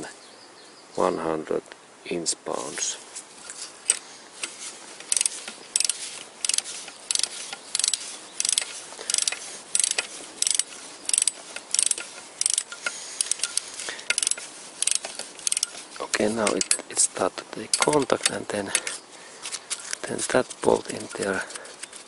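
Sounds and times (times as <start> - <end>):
torque wrench ratchet clicking: 5.1 - 15.8.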